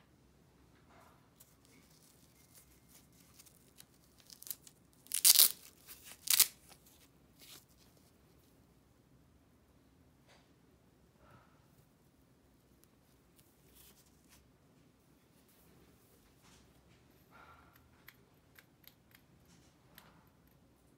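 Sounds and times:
fabric handling: 1.4s - 8.1s
hook-and-loop fastener ripping: 2.0s - 6.8s.

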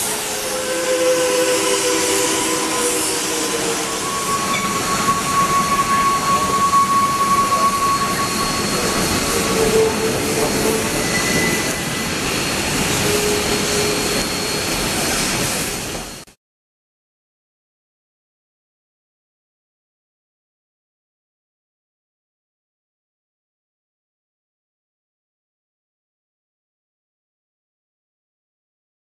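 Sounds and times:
wheel flange squeal: 0.0s - 16.2s
train rail noise: 0.0s - 16.3s.

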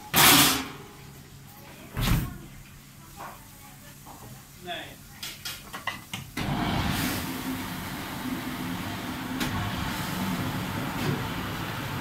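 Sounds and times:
dishwasher pump motor hum: 6.4s - 12.0s.

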